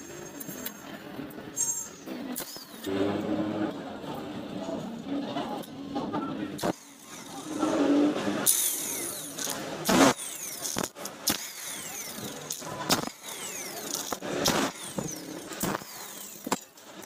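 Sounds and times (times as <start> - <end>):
impact wrench bursts: 1.6 - 2.9, 6.6 - 17.0
tool spinning down whine: 6.6 - 17.0.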